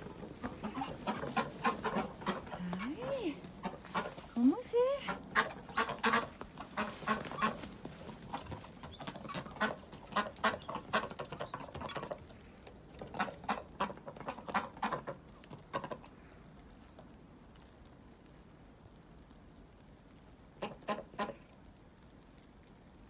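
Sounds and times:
ducks quacking: 0.0s - 4.4s, 5.0s - 12.2s, 13.0s - 16.1s, 20.6s - 21.4s.

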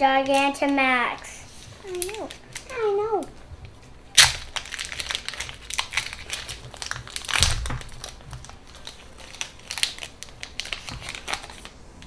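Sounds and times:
foil wrapper crinkling: 1.6s - 3.0s, 4.2s - 11.8s.

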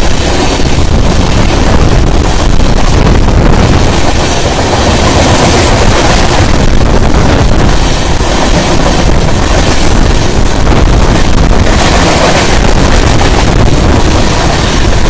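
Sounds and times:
rushing air: 0.0s - 15.0s
train wheels rumbling on rails: 0.0s - 15.0s
wind buffeting microphone: 0.0s - 15.0s.

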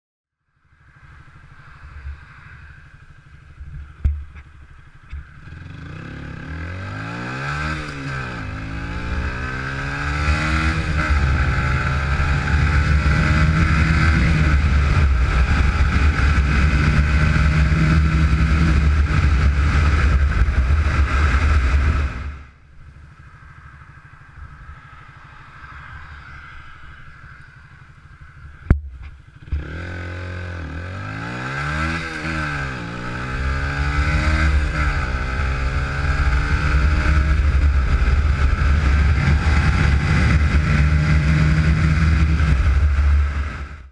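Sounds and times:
motorcycle engine accelerating: 0.6s - 43.9s
wind rush: 6.7s - 22.5s, 31.0s - 43.9s
sharp knock: 28.7s - 29.7s.

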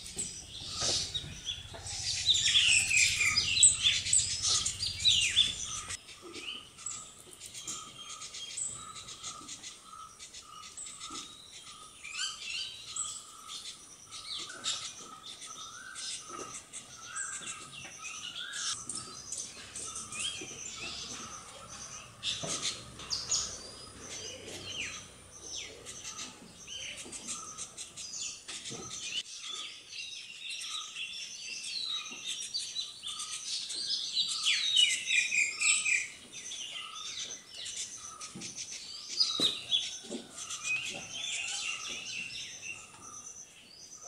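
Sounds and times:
parakeets calling: 0.0s - 6.0s, 18.2s - 29.2s.

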